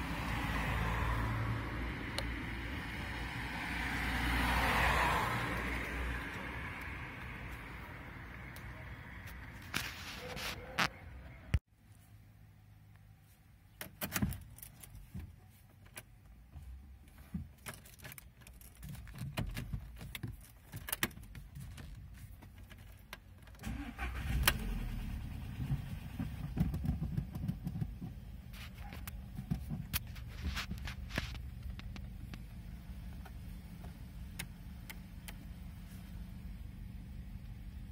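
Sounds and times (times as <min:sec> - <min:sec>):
car engine cranking and starting: 0:17.6 - 0:37.9
car engine idling: 0:23.6 - 0:37.9.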